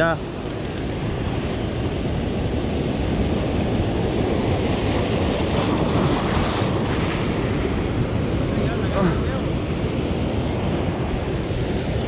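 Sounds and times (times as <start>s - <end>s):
surf breaking on rocky shore: 0.0s - 12.0s
wind buffeting microphone: 0.0s - 12.0s.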